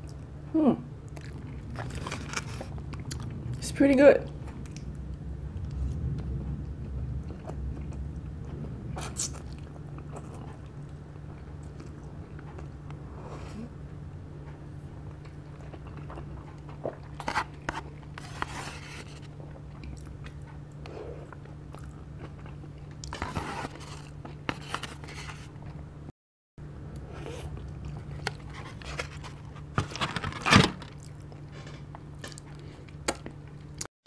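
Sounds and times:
steady low hum: 0.0s - 33.9s
chewing and biting: 1.1s - 3.4s.

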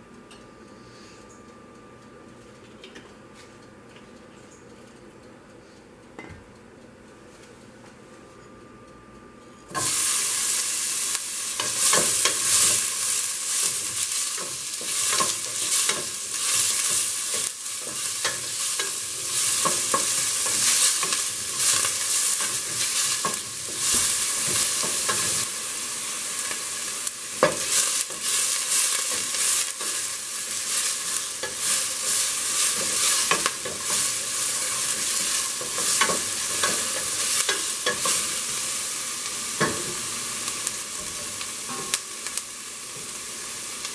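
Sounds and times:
onion sizzling in hot oil: 9.7s - 43.9s.

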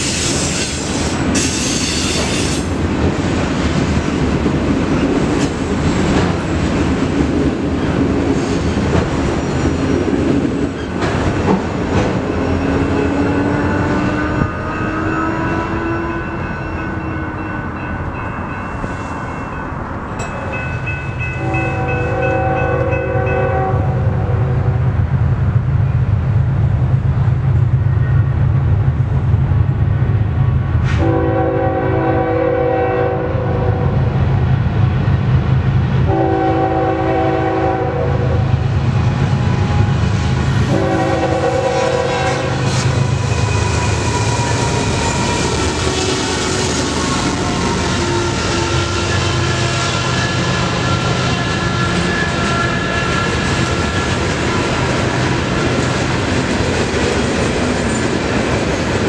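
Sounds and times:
train engines and wheels rumbling: 0.0s - 59.0s
locomotive horn blasts: 21.4s - 24.5s, 30.9s - 34.0s, 36.1s - 38.5s, 40.7s - 43.6s, 47.2s - 53.4s.

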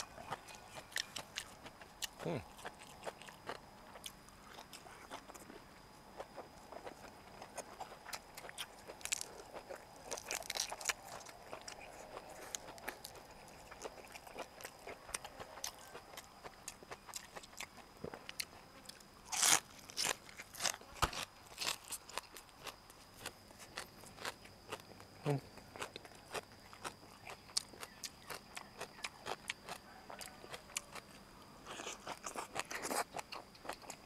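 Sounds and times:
crunching raw vegetables: 0.0s - 34.0s.

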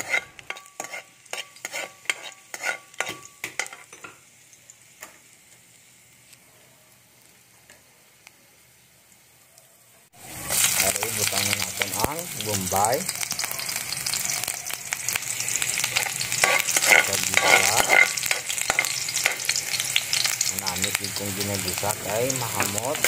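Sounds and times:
metal spatula scraping wok: 0.0s - 4.0s, 13.2s - 20.5s, 21.7s - 23.0s
garlic sizzling in oil: 0.0s - 23.0s.

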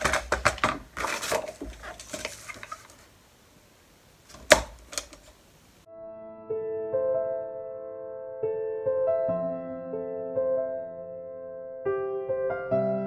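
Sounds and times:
paper rustling: 0.0s - 3.2s, 4.3s - 5.4s
soft piano music: 5.9s - 13.0s.

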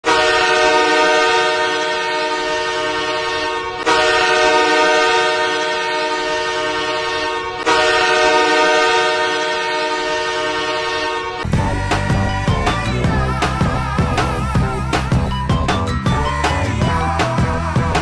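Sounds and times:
hockey goal horn blasts: 0.0s - 11.5s.

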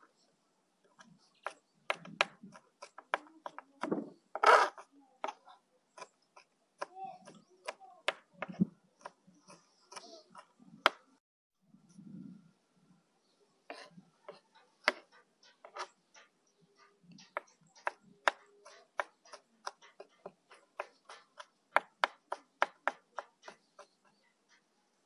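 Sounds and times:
knife chopping on cutting board: 17.3s - 23.9s.

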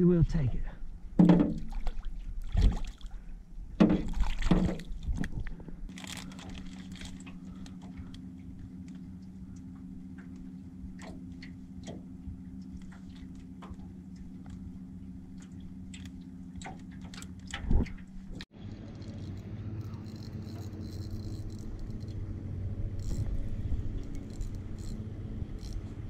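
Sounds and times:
low hum: 0.0s - 26.0s
wind and boat rumble: 0.0s - 26.0s
scattered ticks: 18.9s - 22.2s.

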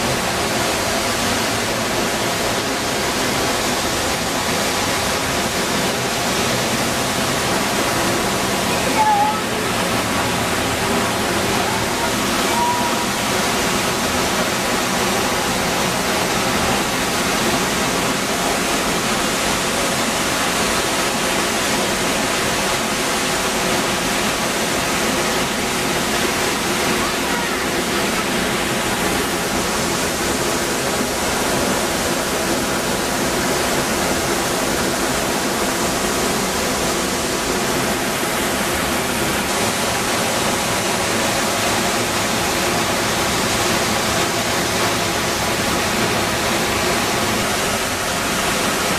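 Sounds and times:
waterfall rushing: 0.0s - 48.9s.

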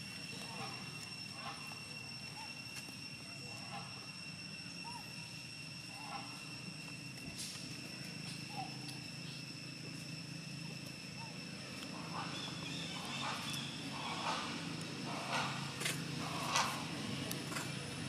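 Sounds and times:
low hum: 0.0s - 18.0s
monkeys chirping: 11.0s - 16.9s.

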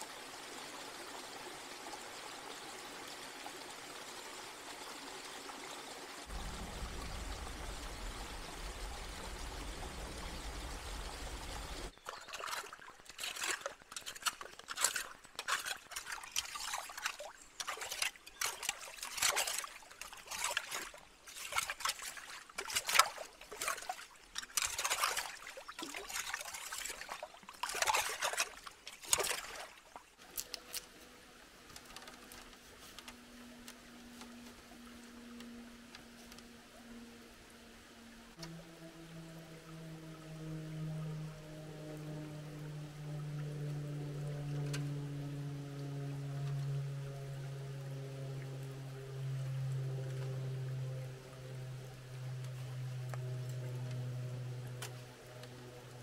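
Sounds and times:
water pouring down rocky stream: 0.0s - 30.9s
gentle water trickle: 0.0s - 56.0s
stones splashing in stream water: 11.9s - 30.8s.

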